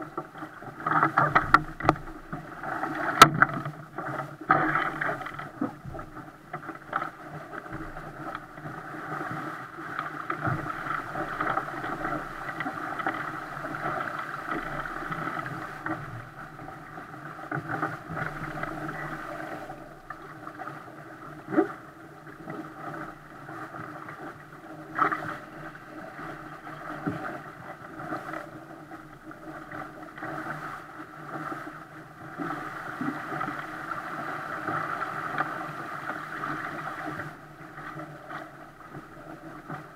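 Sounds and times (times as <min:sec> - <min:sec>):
water rushing along a hull: 0:00.0 - 0:39.9.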